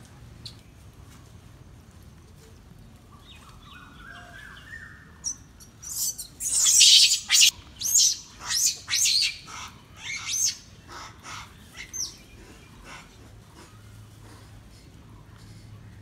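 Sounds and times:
shrill high-pitched animal calls: 0:05.2 - 0:12.1.

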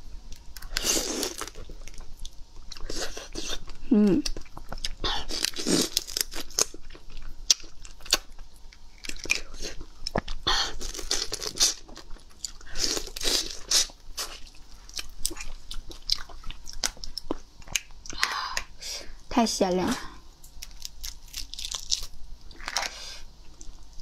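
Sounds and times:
prawn shell cracking and tearing: 0:05.3 - 0:06.8, 0:20.5 - 0:23.0.

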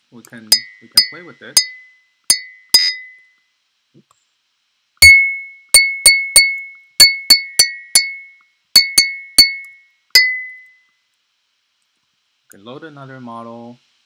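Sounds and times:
glass cup clinks: 0:00.5 - 0:03.2, 0:05.0 - 0:10.7.

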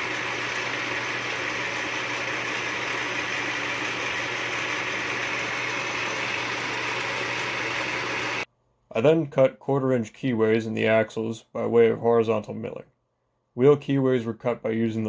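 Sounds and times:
metal lathe running: 0:00.0 - 0:08.5.

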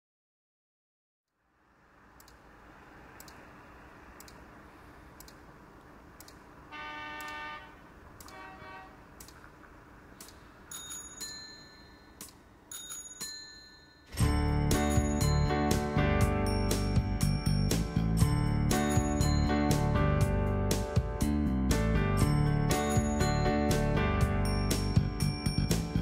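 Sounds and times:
faint ticks: 0:02.1 - 0:02.5, 0:03.2 - 0:03.4, 0:04.2 - 0:04.4, 0:05.1 - 0:06.5, 0:07.1 - 0:07.5, 0:09.2 - 0:10.4
bright bell-like chime: 0:10.7 - 0:20.0, 0:22.2 - 0:26.0
music with low beat: 0:14.2 - 0:26.0.

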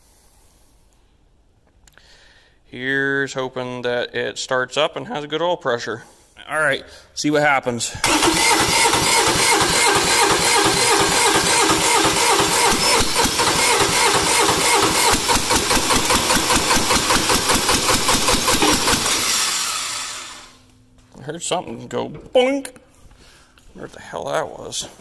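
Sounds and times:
diesel engine cranking: 0:08.0 - 0:20.6.

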